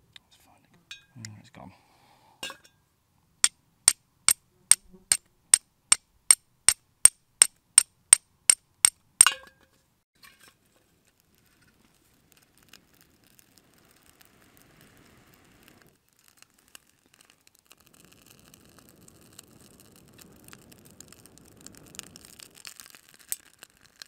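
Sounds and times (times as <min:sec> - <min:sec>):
steel striker hitting flint: 0:03.4 - 0:09.6.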